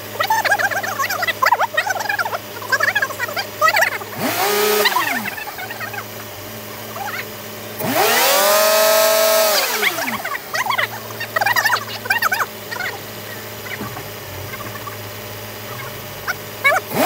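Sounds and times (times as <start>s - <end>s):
car engine idling and revving: 0.0s - 17.0s.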